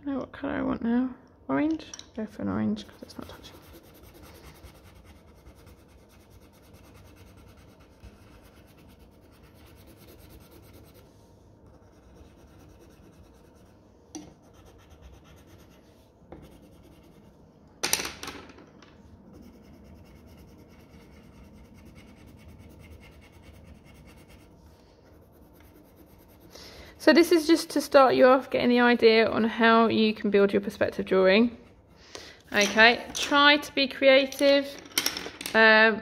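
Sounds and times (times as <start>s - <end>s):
pencil scratching on paper: 2.8s - 13.8s, 14.4s - 17.3s, 19.3s - 26.6s.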